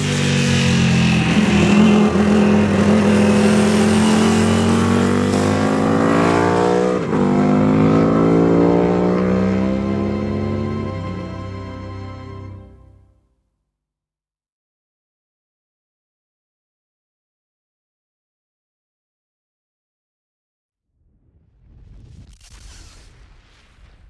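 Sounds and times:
race engine pulling hard: 0.0s - 12.8s.

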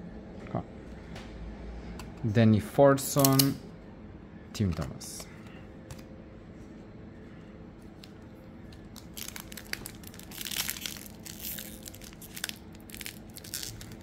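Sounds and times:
wrapper crinkling and tearing: 8.0s - 14.0s.

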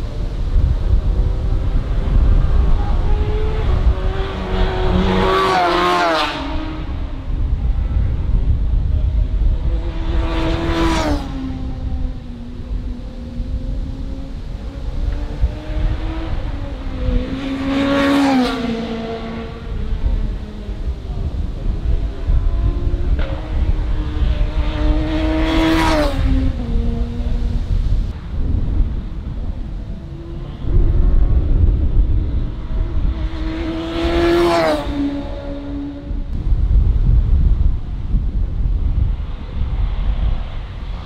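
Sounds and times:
racing motorcycle passing by: 0.0s - 36.4s
wind buffeting microphone: 0.0s - 41.0s.

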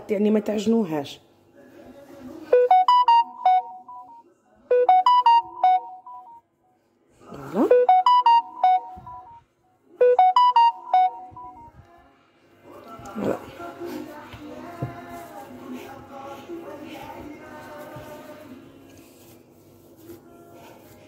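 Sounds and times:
bright electronic melody: 2.6s - 6.4s, 7.7s - 9.4s, 10.0s - 11.7s.

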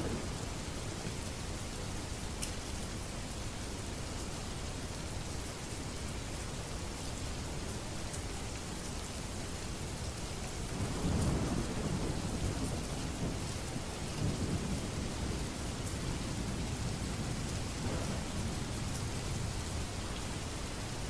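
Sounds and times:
steady rain falling: 0.0s - 21.0s
thunder rumbling: 10.8s - 19.8s.

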